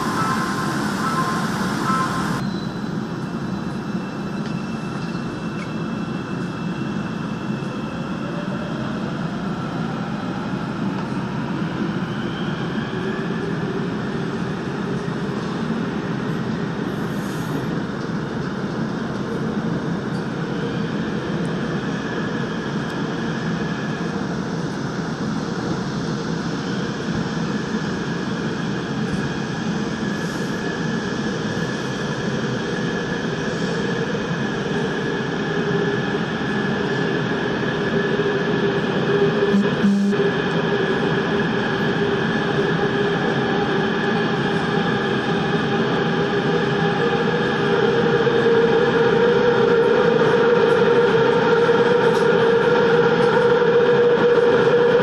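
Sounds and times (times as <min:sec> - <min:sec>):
train motor tones: 0:00.0 - 0:02.4, 0:39.4 - 0:40.6
train wheel and rail noise: 0:00.0 - 0:55.0.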